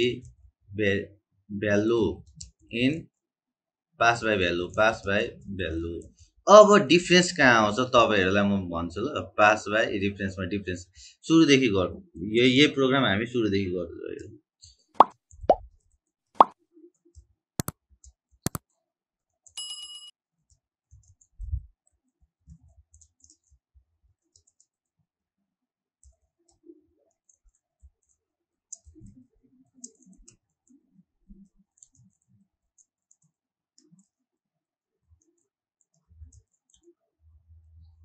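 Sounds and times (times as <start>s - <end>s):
sharp clicks: 18.5s - 18.7s
short bell-like ding: 19.6s - 20.1s
computer keyboard typing: 22.6s - 23.6s, 24.2s - 24.9s, 26.0s - 34.2s, 35.1s - 37.0s.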